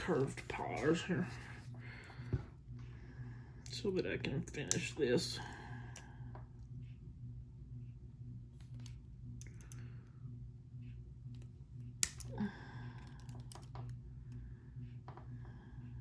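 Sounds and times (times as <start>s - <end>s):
steady low hum: 0.0s - 16.0s
jewelry pliers clicking on wire: 8.7s - 9.8s, 11.3s - 12.4s, 13.0s - 14.0s.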